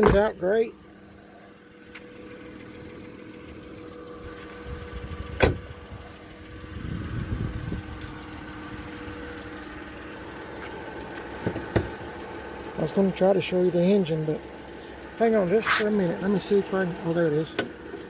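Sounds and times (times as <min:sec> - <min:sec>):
car door slamming: 0:00.0 - 0:00.4, 0:05.3 - 0:05.7, 0:11.4 - 0:12.1.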